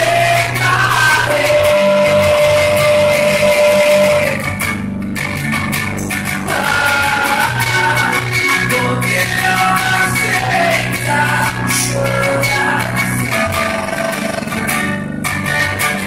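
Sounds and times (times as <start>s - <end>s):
man singing: 0.0s - 4.6s, 6.4s - 14.7s
strummed electric guitar: 0.0s - 16.0s.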